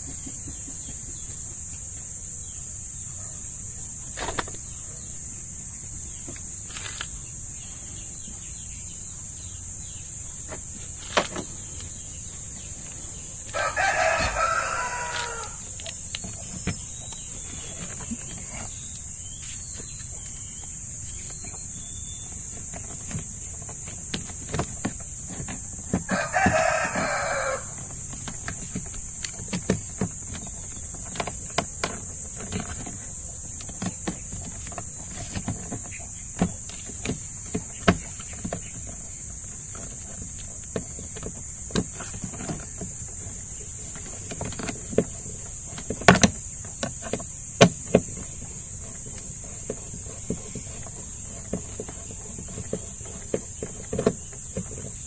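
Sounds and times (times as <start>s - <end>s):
rooster crowing: 13.4s - 15.8s, 26.0s - 27.9s.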